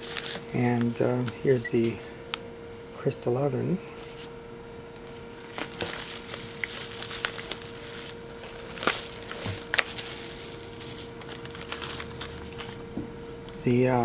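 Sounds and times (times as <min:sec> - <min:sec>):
bubble wrap and plastic crinkling: 0:00.0 - 0:02.4, 0:05.0 - 0:13.0.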